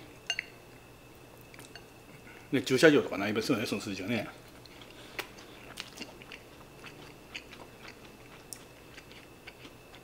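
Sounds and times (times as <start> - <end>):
close chewing with mouth clicks: 4.5 - 10.0.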